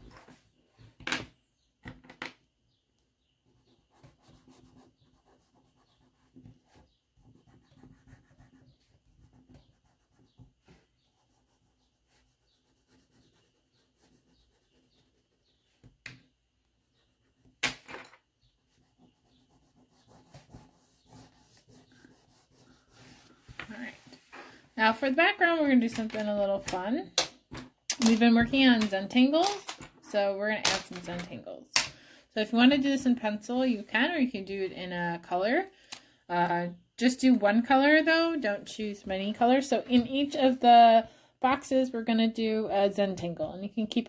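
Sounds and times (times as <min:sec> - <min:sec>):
crayon rubbing on paper: 0:03.6 - 0:15.6, 0:18.7 - 0:24.4.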